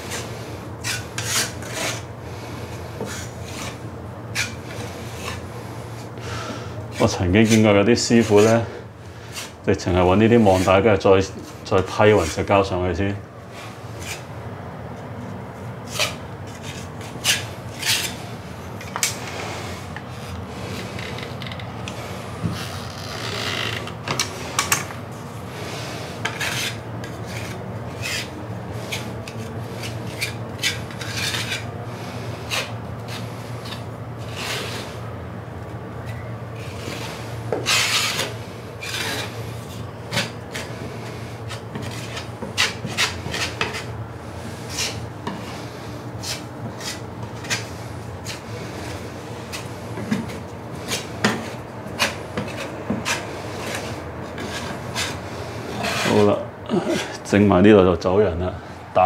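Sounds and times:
metal putty knife scraping plasterboard: 0.1 - 2.0, 3.0 - 5.4, 15.9 - 18.2, 26.2 - 31.7, 32.3 - 35.0, 36.1 - 43.9, 44.5 - 56.4.

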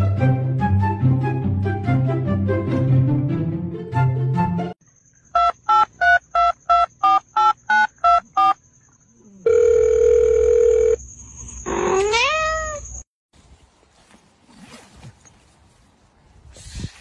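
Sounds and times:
phone keypad beeps: 5.4 - 8.6
cat meowing: 11.8 - 12.9.

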